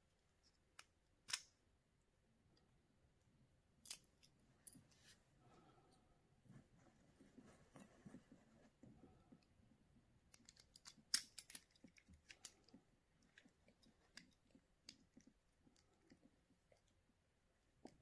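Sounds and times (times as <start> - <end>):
plastic parts clicking: 0.6 - 1.5, 10.3 - 15.1.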